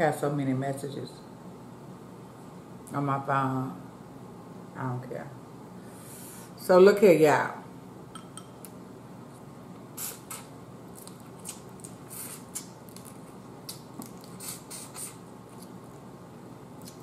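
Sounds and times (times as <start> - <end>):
mouth sucking and smacking: 10.0 - 10.5, 11.1 - 15.8.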